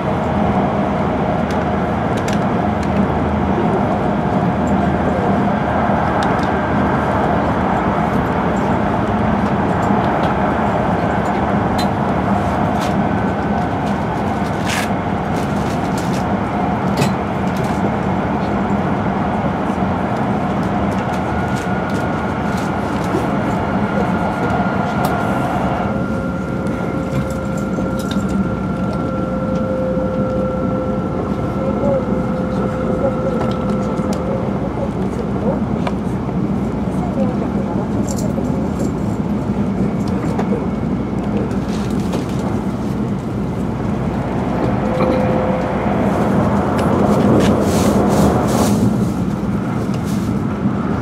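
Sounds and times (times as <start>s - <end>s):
train cabin rush and rumble: 0.0s - 51.0s
faint steady whine: 25.6s - 35.5s.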